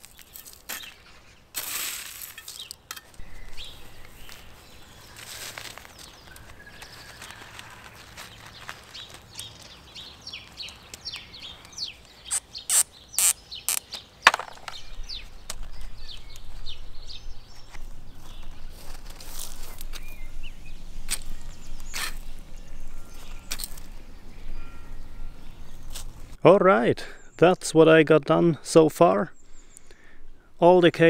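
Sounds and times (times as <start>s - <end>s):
gravel crunching and rattling: 0.0s - 12.5s, 13.7s - 24.1s
rustling: 0.0s - 14.8s, 17.6s - 20.2s
stone clicks: 13.7s - 14.8s.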